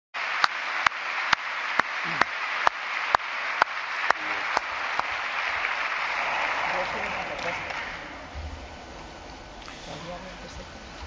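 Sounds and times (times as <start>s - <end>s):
loud single claps: 0.2s - 8.2s
audience applause: 0.2s - 8.4s.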